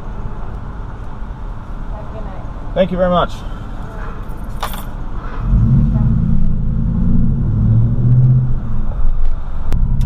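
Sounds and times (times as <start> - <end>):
truck engine accelerating: 5.4 - 10.0.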